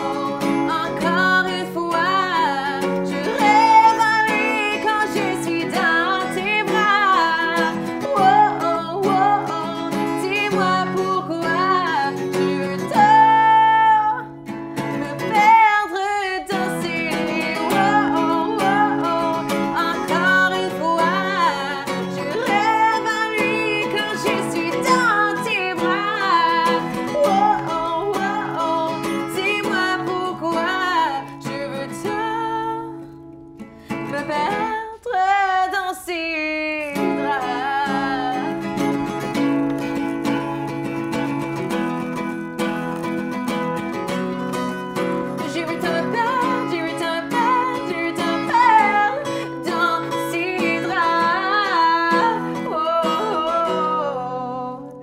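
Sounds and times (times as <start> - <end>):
strummed acoustic guitar: 0.0 - 55.0
woman singing: 0.0 - 55.0.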